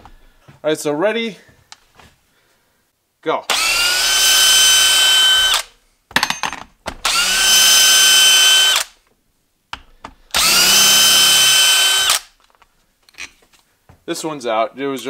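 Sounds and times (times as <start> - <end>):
cordless drill whining: 3.5 - 5.7, 7.0 - 9.0, 10.3 - 12.4.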